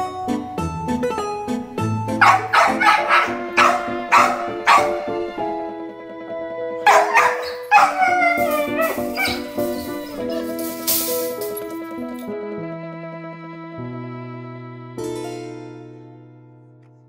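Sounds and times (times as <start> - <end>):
background piano music: 0.0 - 17.0
dog barking: 2.2 - 5.1, 6.8 - 9.5
dog howling: 2.2 - 5.2, 6.9 - 9.6.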